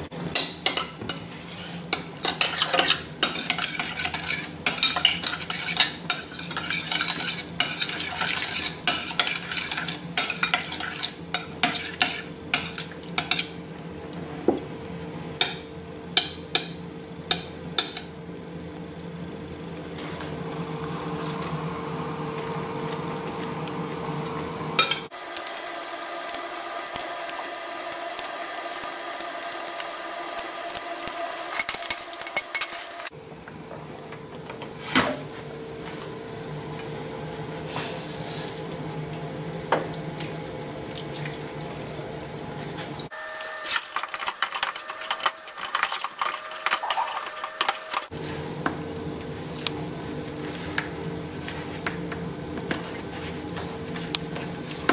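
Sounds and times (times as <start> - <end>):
potato masher in a pot: 0.3 - 13.6, 24.8 - 33.2, 43.1 - 48.8
saucepan and utensils clattering: 0.3 - 13.6, 24.8 - 25.1, 31.5 - 33.1, 43.3 - 48.1.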